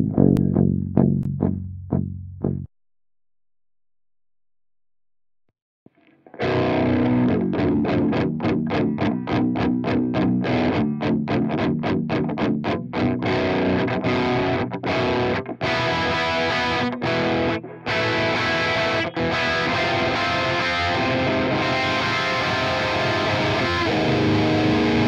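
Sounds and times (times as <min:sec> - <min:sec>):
distorted electric guitar riff: 0:06.2 - 0:25.0.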